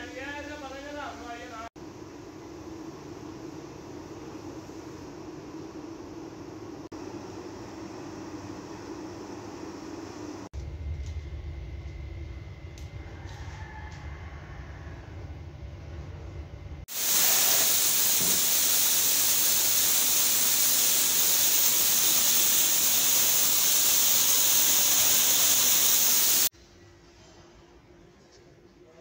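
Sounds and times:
spray gun hissing: 0:16.9 - 0:26.5.

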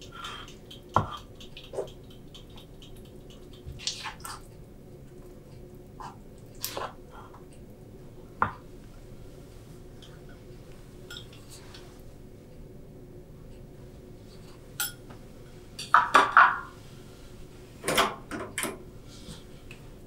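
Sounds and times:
faint steady hum: 0:00.0 - 0:20.0
utensils clinking against cooking pot: 0:11.1 - 0:11.4, 0:14.8 - 0:15.0.

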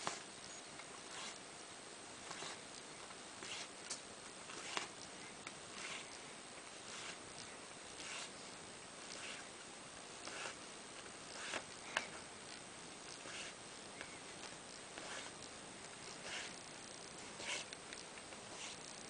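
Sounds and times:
thread rasping through cloth: 0:03.4 - 0:03.7, 0:04.5 - 0:05.0, 0:05.7 - 0:06.2, 0:08.0 - 0:08.3, 0:09.0 - 0:09.5, 0:11.3 - 0:11.7, 0:13.1 - 0:13.6, 0:15.0 - 0:16.6, 0:17.2 - 0:17.8.

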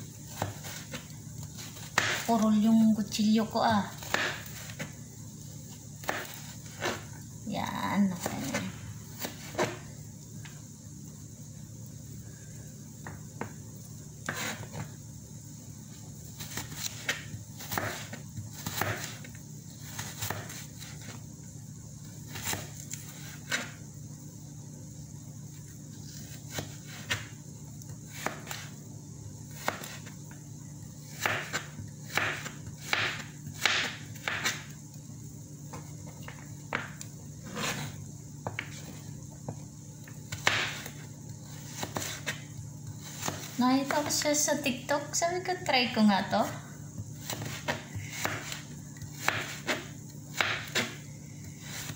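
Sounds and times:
knife cutting carrot on board: 0:14.2 - 0:14.8, 0:16.4 - 0:21.1, 0:29.5 - 0:30.1, 0:31.1 - 0:34.6, 0:40.3 - 0:42.4, 0:47.2 - 0:51.0.

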